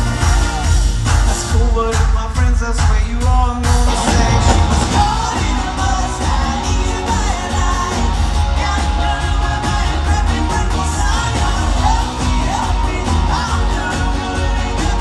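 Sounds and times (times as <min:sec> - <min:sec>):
heavy bass: 0:00.0 - 0:15.0
lead singer: 0:00.0 - 0:15.0
live pop rock band: 0:00.0 - 0:15.0.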